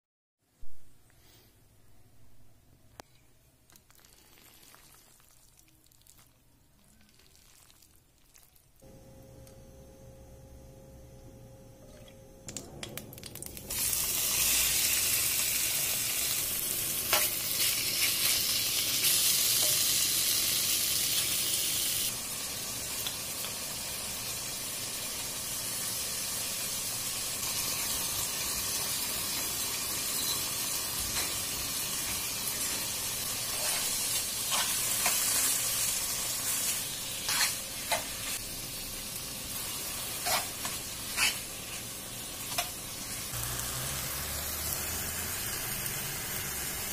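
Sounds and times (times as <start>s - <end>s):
chicken sizzling in hot oil: 13.2s - 46.9s
spoon stirring clicks and scrapes: 37.2s - 38.3s, 40.2s - 41.8s.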